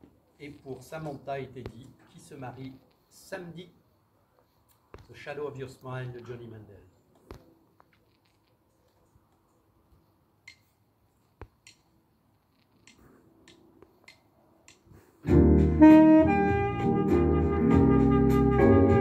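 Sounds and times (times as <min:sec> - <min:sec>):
deep bass line: 0:15.3 - 0:19.0
saxophone playing slow melody: 0:15.3 - 0:19.0.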